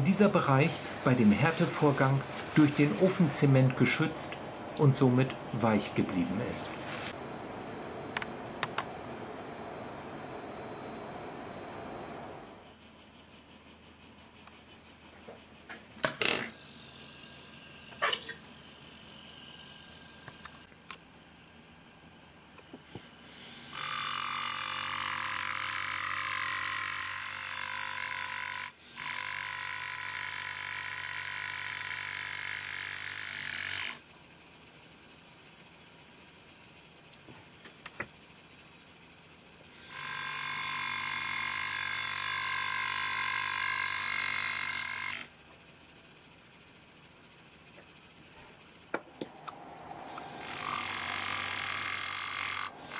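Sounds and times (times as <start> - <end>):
pneumatic engraver buzzing on steel: 22.9 - 34.0, 39.8 - 45.3, 49.4 - 52.9.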